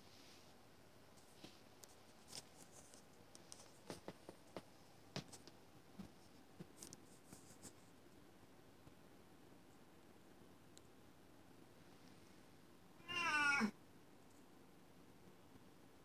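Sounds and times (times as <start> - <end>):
faint scratches: 1.1 - 4.6, 5.2 - 8.0.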